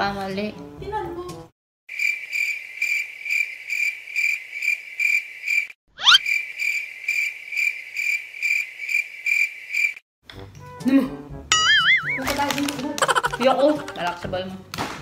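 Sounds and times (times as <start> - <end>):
cricket chirping: 1.9 - 10.0.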